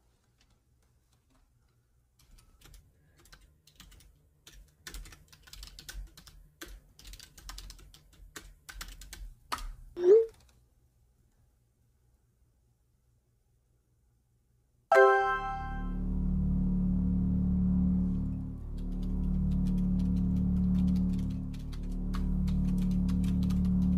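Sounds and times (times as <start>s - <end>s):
loud rising sound: 14.9s - 23.9s.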